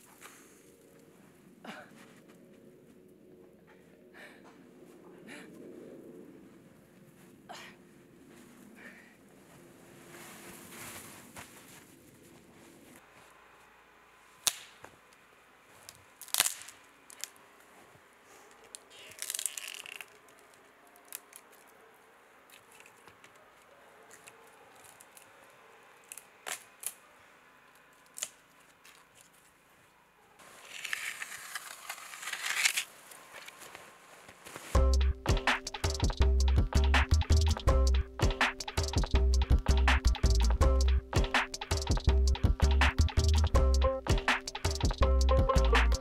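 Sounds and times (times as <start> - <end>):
crunching scrapes in snow: 9.5 - 13.4, 30.4 - 34.8
dry wood snapping: 14.4 - 14.9, 15.9 - 17.4, 18.7 - 21.6, 26.0 - 27.0, 27.7 - 29.3.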